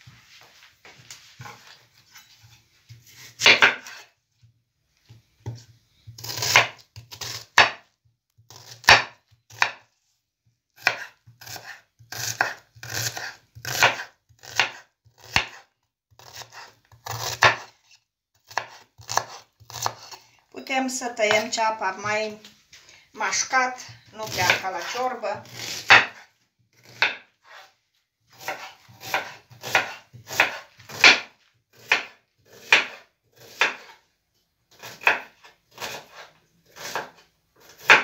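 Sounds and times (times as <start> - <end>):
knife chopping on wooden board: 2.4 - 4.1, 5.1 - 7.9, 8.5 - 9.9, 10.8 - 20.2, 24.2 - 27.7, 28.3 - 34.0, 34.8 - 38.0.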